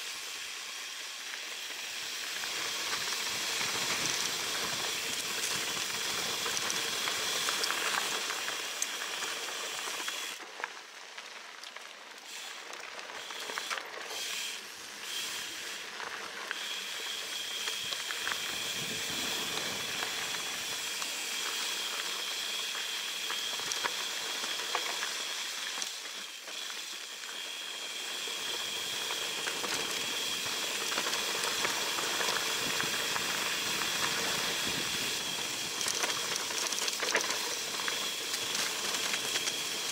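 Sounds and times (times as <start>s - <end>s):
bike tyre hiss: 0.0s - 11.5s, 12.1s - 39.9s
wind noise: 18.4s - 20.8s, 31.7s - 36.4s.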